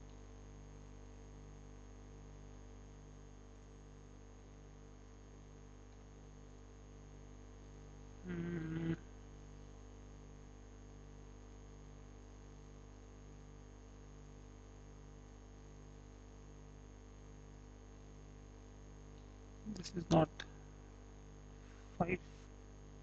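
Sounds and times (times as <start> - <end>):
electrical hum and hiss: 0.0 - 23.0
short voice-like sound: 8.3 - 9.0.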